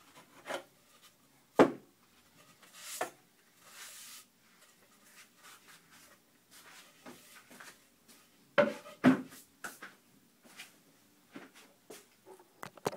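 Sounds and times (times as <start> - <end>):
objects knocking and clunking: 8.6 - 9.3.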